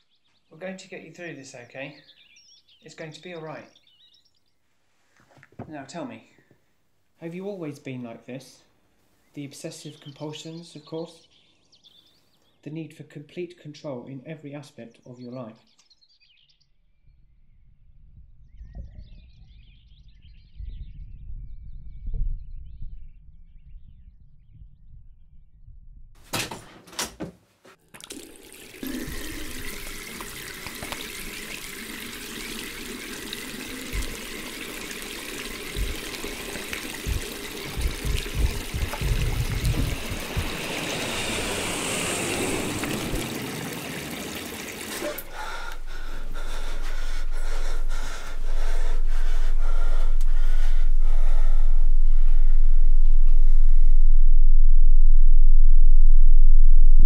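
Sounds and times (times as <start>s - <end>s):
tap water splashing on hands: 27.9s - 45.9s
low hum: 28.8s - 57.0s.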